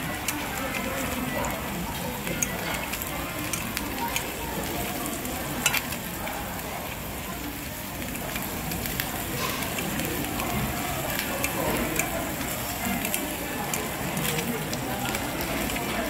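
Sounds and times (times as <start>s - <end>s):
beef sizzling on grill pan: 0.1s - 16.0s
metal tongs clicking: 2.2s - 4.3s, 5.6s - 6.0s.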